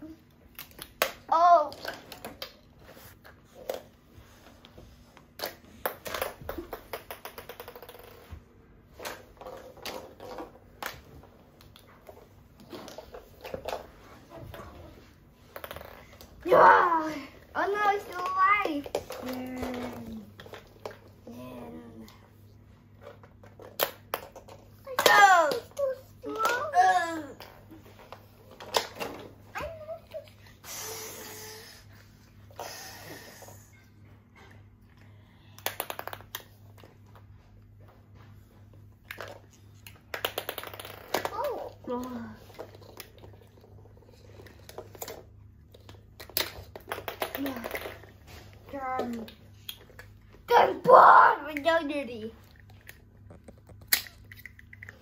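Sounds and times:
child's voice: 0:01.3 - 0:01.9, 0:16.4 - 0:20.3, 0:24.9 - 0:27.4, 0:29.6 - 0:30.3, 0:41.3 - 0:42.4, 0:50.5 - 0:52.4
plastic ball bouncing on floor: 0:05.4 - 0:08.4, 0:15.4 - 0:16.5, 0:23.0 - 0:26.8, 0:35.6 - 0:36.9, 0:39.1 - 0:43.7, 0:44.6 - 0:50.0
plastic toys clattering on wood floor: 0:05.4 - 0:14.8, 0:15.4 - 0:21.2, 0:23.0 - 0:30.5, 0:35.6 - 0:36.9, 0:39.0 - 0:50.2.

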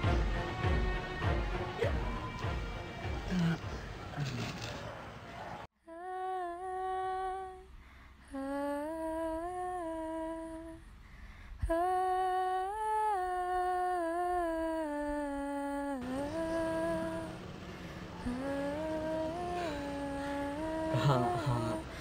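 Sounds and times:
person humming melody: 0:03.3 - 0:04.4, 0:05.9 - 0:10.8, 0:11.6 - 0:17.4, 0:18.1 - 0:22.0.

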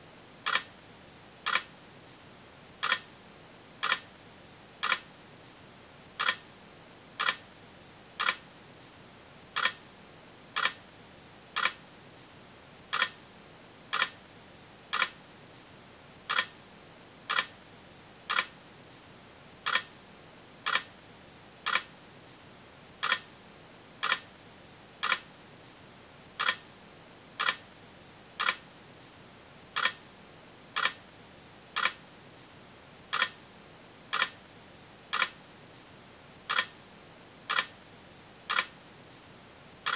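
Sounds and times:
sharp clicks: 0:01.5 - 0:01.7, 0:02.8 - 0:03.0, 0:04.8 - 0:05.0, 0:06.2 - 0:06.4, 0:07.2 - 0:07.4, 0:08.2 - 0:08.4, 0:09.6 - 0:09.8, 0:10.6 - 0:10.8, 0:11.6 - 0:11.8, 0:12.9 - 0:13.2, 0:13.9 - 0:14.2, 0:14.9 - 0:15.2, 0:18.3 - 0:18.5, 0:21.7 - 0:21.9, 0:23.0 - 0:23.2, 0:24.0 - 0:24.2, 0:25.0 - 0:25.2, 0:26.4 - 0:26.6, 0:27.4 - 0:27.6, 0:28.4 - 0:28.6, 0:29.8 - 0:30.0, 0:30.8 - 0:31.0, 0:31.8 - 0:32.0, 0:33.1 - 0:33.4, 0:34.1 - 0:34.4, 0:35.1 - 0:35.4, 0:36.5 - 0:36.7, 0:37.5 - 0:37.7, 0:38.5 - 0:38.7.

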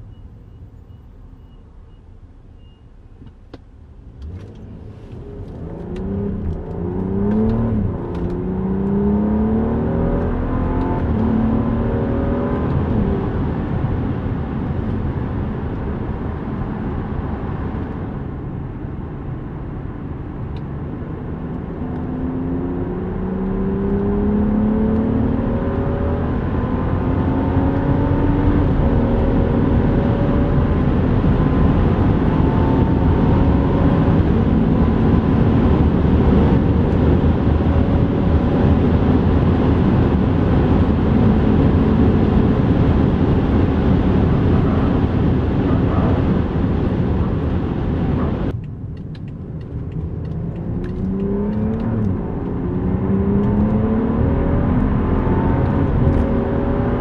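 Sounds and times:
car engine accelerating hard: 0:04.2 - 0:57.0.

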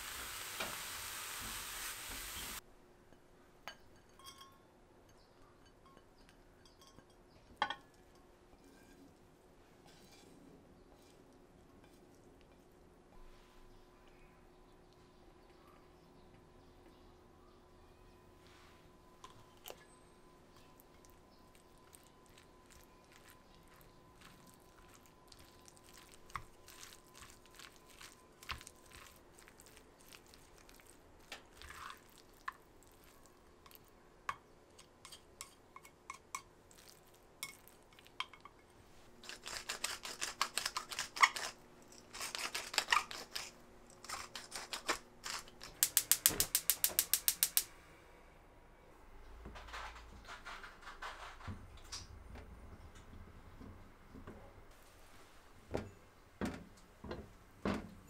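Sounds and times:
chopsticks clicking against bowl: 0:45.7 - 0:47.7
gas igniter clicking rapidly: 0:45.8 - 0:47.7.

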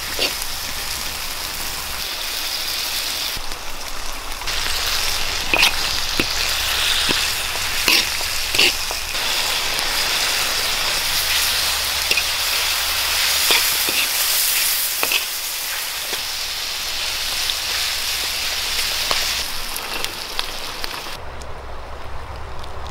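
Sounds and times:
meat and vegetables sizzling in wok: 0:00.0 - 0:21.2
metal spatula scraping pan: 0:00.1 - 0:00.4, 0:05.4 - 0:09.1, 0:09.7 - 0:16.3.

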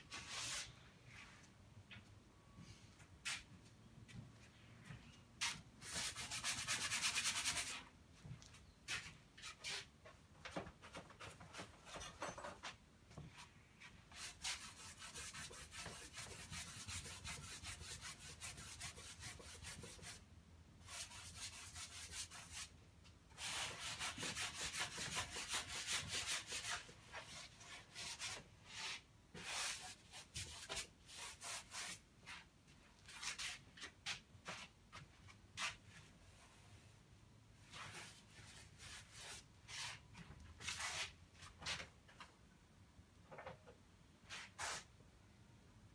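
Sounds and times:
paintbrush scrubbing canvas: 0:37.7 - 0:40.0.

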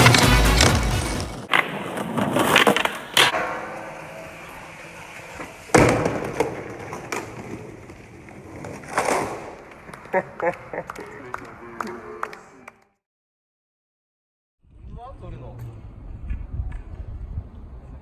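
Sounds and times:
music: 0:00.0 - 0:01.5
skateboard landing: 0:00.0 - 0:10.0
skateboard wheels rolling: 0:00.0 - 0:10.2.

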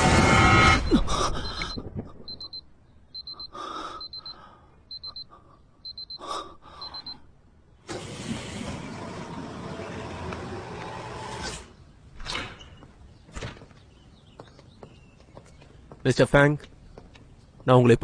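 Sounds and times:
electronic alarm beeping: 0:00.5 - 0:07.3.

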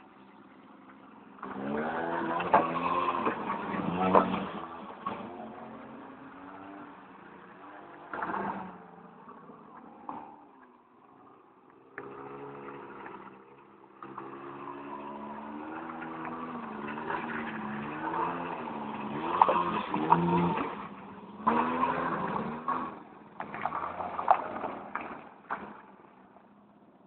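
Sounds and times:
quad bike engine revving: 0:01.4 - 0:06.8, 0:12.0 - 0:13.4, 0:14.0 - 0:24.8.

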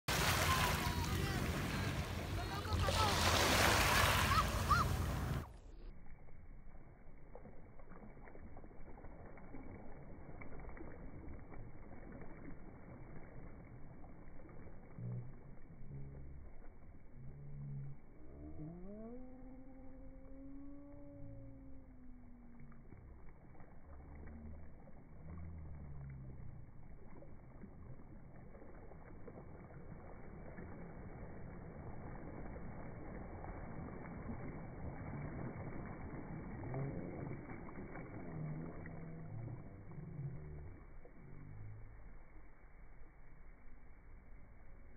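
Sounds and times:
waves splashing on pebbles: 0:00.1 - 0:05.4
low hum: 0:00.1 - 0:44.9
soft water lapping: 0:00.1 - 0:44.9.

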